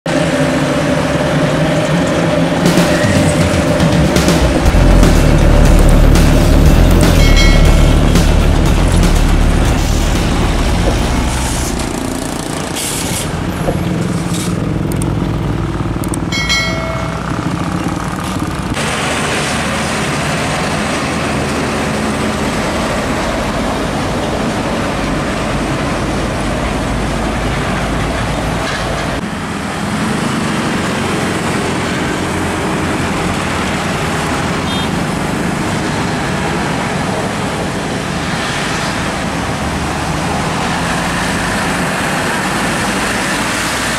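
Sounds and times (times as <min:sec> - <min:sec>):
diesel trucks passing: 0:00.1 - 0:43.9
traffic noise: 0:00.1 - 0:43.9
brief high-pitched tone: 0:02.7 - 0:04.0, 0:07.0 - 0:08.2.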